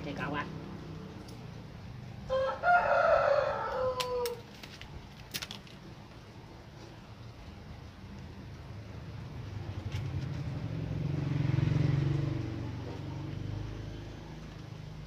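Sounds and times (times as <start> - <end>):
rooster crowing: 2.2 - 4.5.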